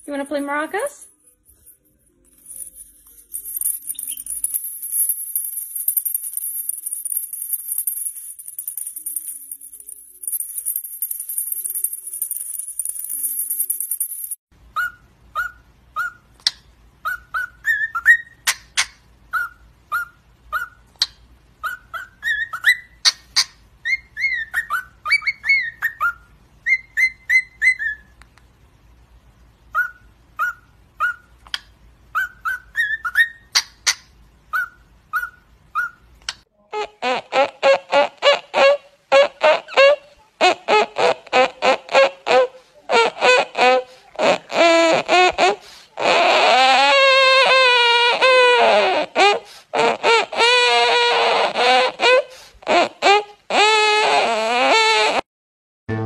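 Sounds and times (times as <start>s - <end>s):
parrot shaking toy maraca: 0.0s - 14.4s
cockatiels whistling: 14.8s - 20.8s, 21.6s - 28.1s, 29.7s - 31.3s, 32.1s - 36.0s.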